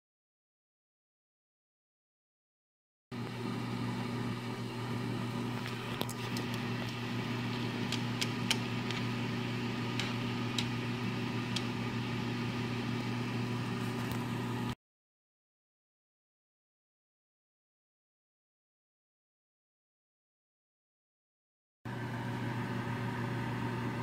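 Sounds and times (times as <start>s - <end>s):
electrical hum: 3.2s - 14.8s, 21.9s - 24.0s.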